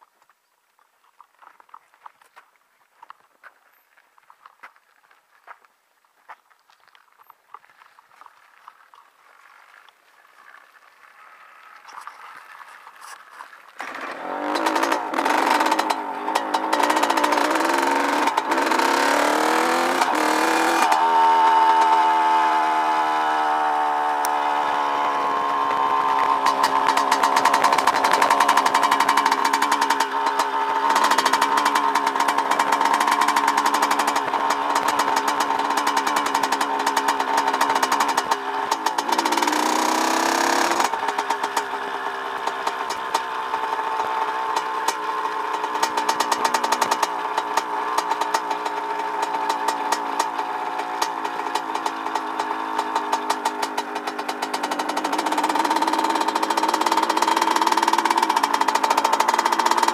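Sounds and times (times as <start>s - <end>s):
dirt bike engine revving: 13.8s - 59.9s.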